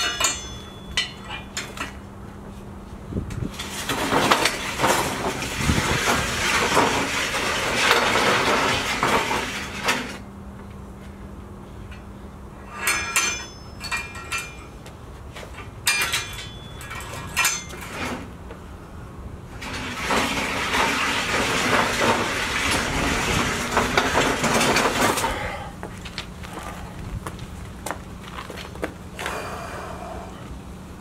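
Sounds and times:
metal clanks: 0:00.0 - 0:02.0, 0:11.9 - 0:14.8, 0:15.4 - 0:18.3
sled scraping over asphalt: 0:03.5 - 0:10.2, 0:19.5 - 0:25.4.

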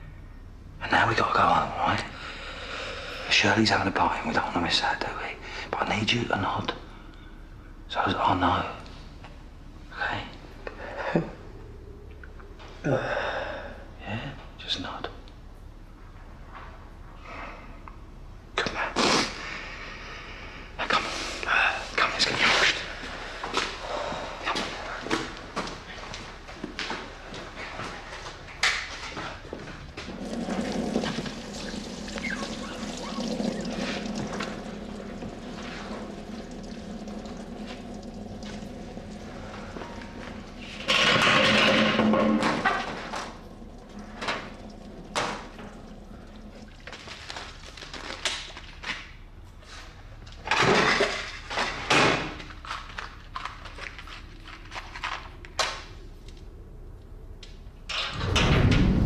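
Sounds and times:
hands washing under water: 0:29.4 - 0:48.8
tap water running into sink: 0:29.9 - 0:47.5
objects rustling: 0:34.9 - 0:56.5.

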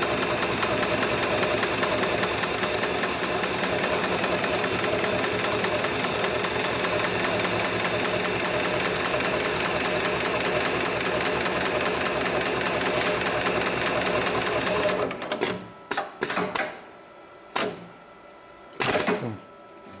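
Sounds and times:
sewing machine stitching: 0:00.0 - 0:15.6.

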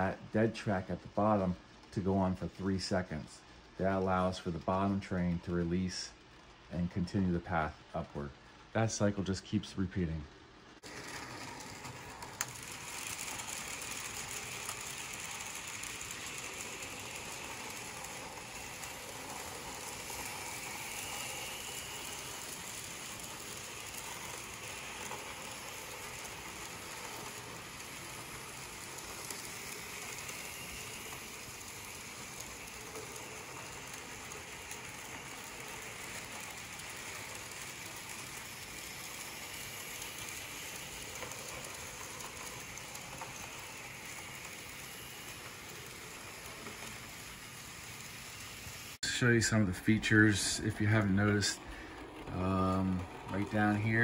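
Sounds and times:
model locomotive motors humming: 0:00.0 - 0:54.0
small metal wheels clattering on rails: 0:10.8 - 0:54.0.

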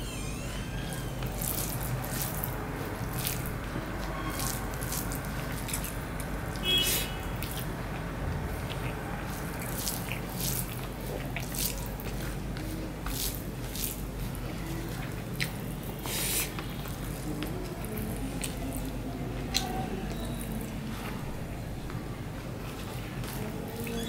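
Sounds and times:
wet squishes of rice mixing: 0:00.8 - 0:24.0
mouth smacks while chewing: 0:04.4 - 0:14.0, 0:14.9 - 0:18.8.

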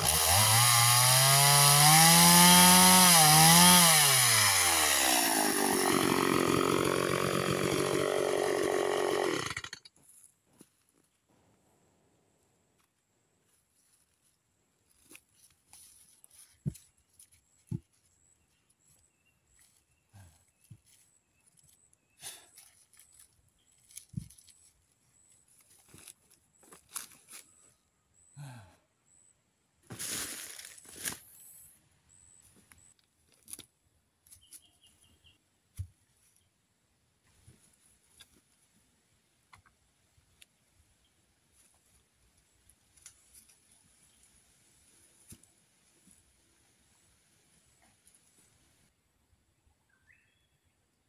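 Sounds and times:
footsteps in dry leaves: 0:13.5 - 0:18.9, 0:19.5 - 0:27.8, 0:29.9 - 0:31.6.

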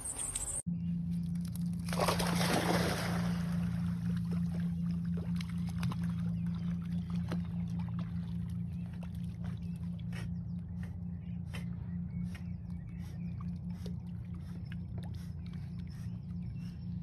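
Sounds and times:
loud low hum: 0:00.0 - 0:17.0
dog splashing into water: 0:01.8 - 0:04.6.

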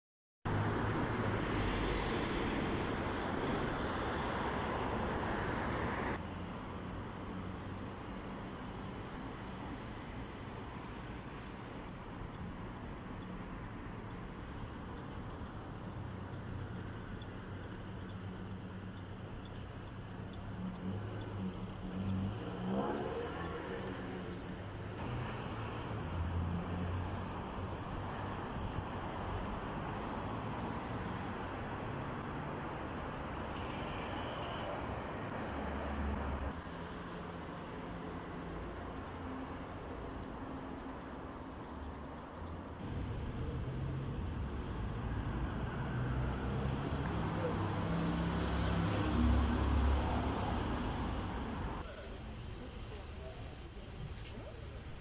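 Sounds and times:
city street traffic: 0:00.4 - 0:55.0
car driving past close by: 0:42.8 - 0:51.6.

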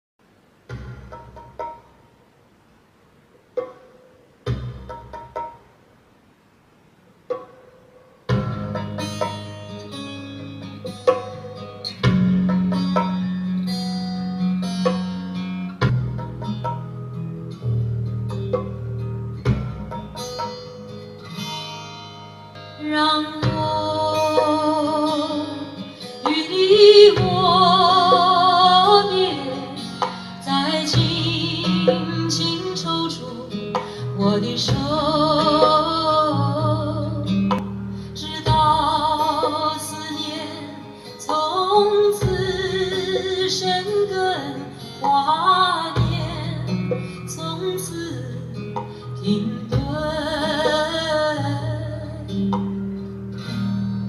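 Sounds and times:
guitar: 0:07.3 - 0:54.0
woman singing: 0:22.8 - 0:52.6.

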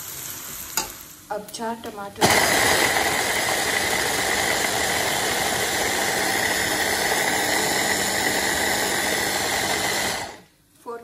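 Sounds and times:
electric food chopper running: 0:02.2 - 0:10.5.

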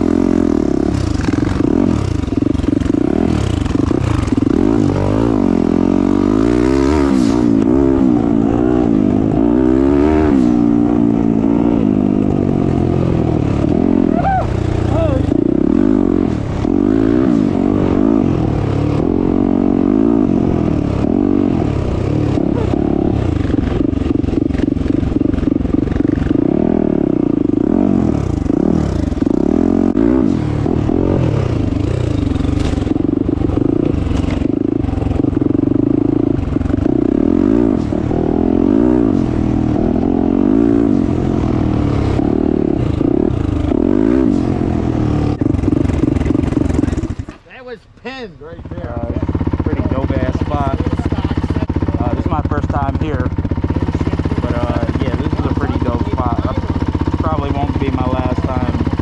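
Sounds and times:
motorcycle engine revving: 0:00.0 - 0:59.0
clatter from rough ground: 0:32.0 - 0:35.3, 0:45.4 - 0:59.0.

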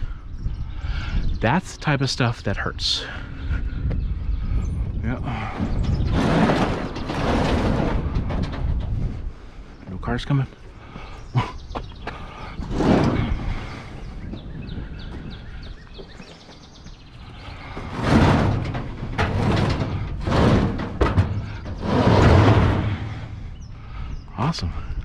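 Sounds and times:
heavy furniture scraping: 0:05.2 - 0:09.8, 0:12.3 - 0:16.2, 0:17.2 - 0:23.7.

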